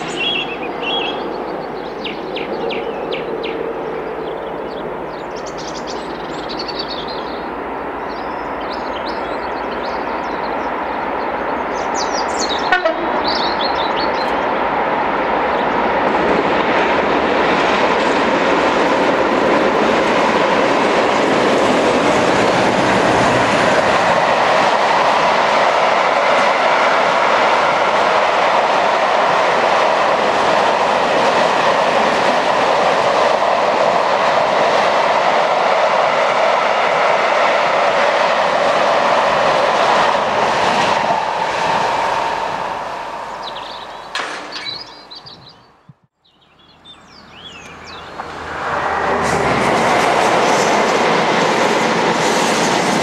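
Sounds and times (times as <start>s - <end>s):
birds chirping: 0.0s - 17.8s, 43.2s - 48.4s
diesel locomotives droning: 0.0s - 45.9s, 46.5s - 53.0s
train wheels clattering on rails: 15.5s - 45.5s, 47.6s - 53.0s.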